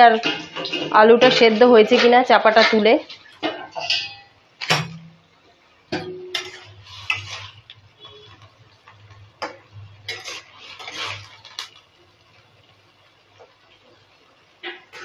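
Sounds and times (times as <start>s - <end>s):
metal spatula scraping a wok: 0.1s - 4.4s, 6.0s - 11.9s, 14.6s - 15.0s.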